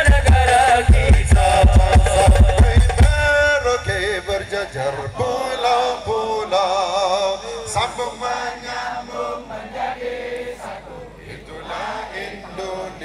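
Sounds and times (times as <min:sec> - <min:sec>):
drum beats: 0:00.0 - 0:05.5
men singing devotional song: 0:00.0 - 0:13.0.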